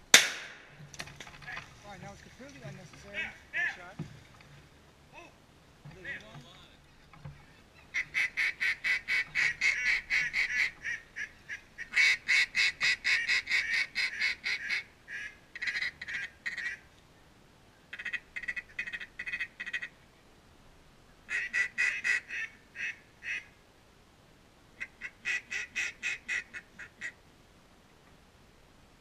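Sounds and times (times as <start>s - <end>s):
duck call rapid quacks: 8.0s - 16.8s, 18.0s - 19.9s, 21.3s - 23.5s, 24.8s - 27.2s.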